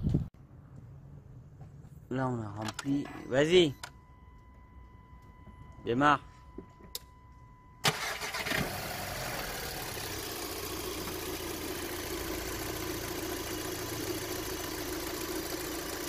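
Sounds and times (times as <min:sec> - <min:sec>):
car engine starting and idling: 0:07.8 - 0:16.0.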